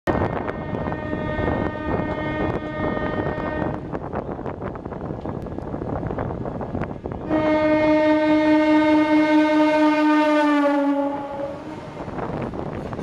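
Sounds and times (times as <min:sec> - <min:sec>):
train horn long note: 0:00.1 - 0:03.8, 0:07.2 - 0:12.0
train rattle and rumble: 0:00.1 - 0:13.0.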